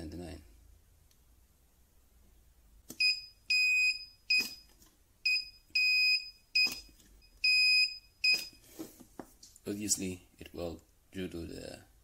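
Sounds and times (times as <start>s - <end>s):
spot welder beeping: 3.0s - 4.7s, 5.3s - 8.6s.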